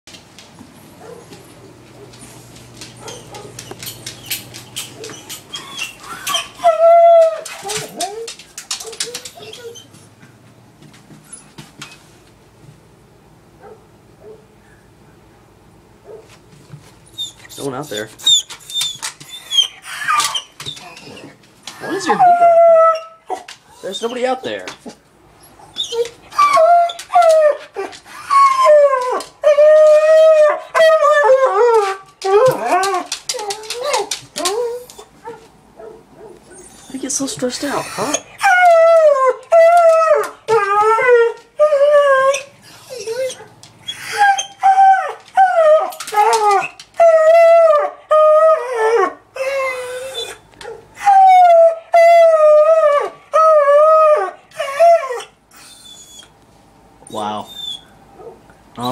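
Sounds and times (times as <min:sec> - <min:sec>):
dog howling: 0:05.0 - 0:09.9, 0:17.9 - 0:24.2, 0:25.8 - 0:37.0, 0:37.6 - 0:56.2.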